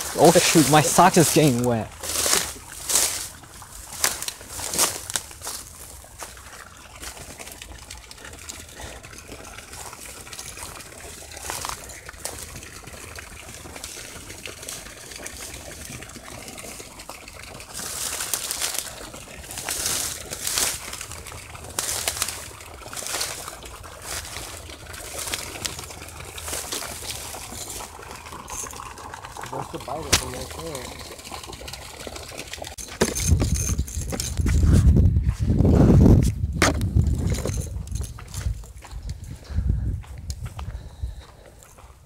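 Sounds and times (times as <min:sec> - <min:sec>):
reeds and grass rustling: 0:00.0 - 0:07.5, 0:09.8 - 0:12.8, 0:17.6 - 0:28.8.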